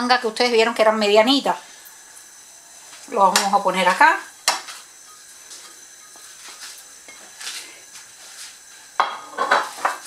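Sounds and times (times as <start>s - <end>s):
dishware knocking: 9.0s - 10.0s.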